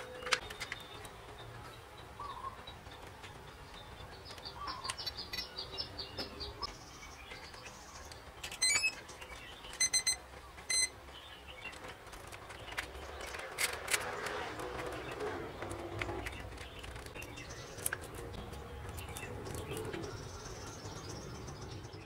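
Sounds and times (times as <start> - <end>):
short beeps: 9.8 - 10.9.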